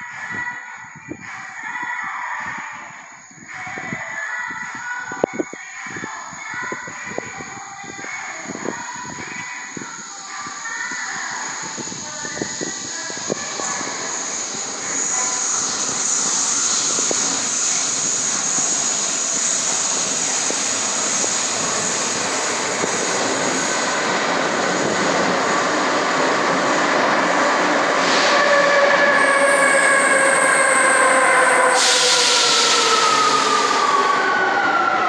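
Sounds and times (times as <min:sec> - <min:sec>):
hiss: 0:07.5 - 0:28.3, 0:31.6 - 0:34.2.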